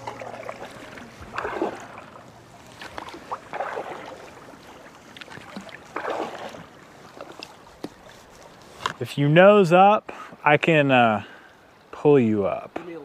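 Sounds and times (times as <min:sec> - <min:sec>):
kayak paddle splashing in water: 0:00.0 - 0:09.0.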